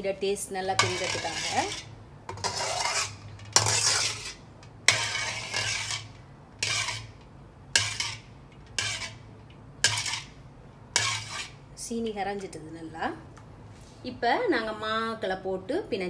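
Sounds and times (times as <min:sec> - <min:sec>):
spoon stirring and scraping a pot: 0:00.7 - 0:10.4, 0:11.0 - 0:11.6.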